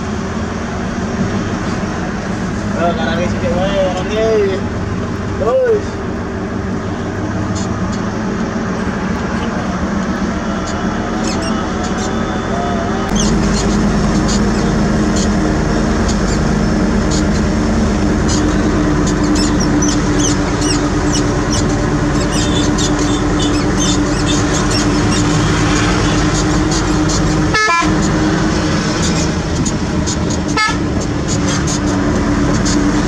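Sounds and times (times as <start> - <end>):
heavy diesel engine droning: 0.0 - 33.0
high squeaks and clinks: 10.6 - 15.4, 18.2 - 28.2.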